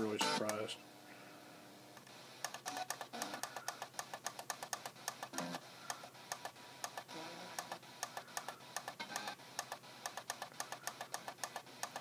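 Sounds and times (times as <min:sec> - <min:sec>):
radio tuning button clicks: 0:00.2 - 0:00.6.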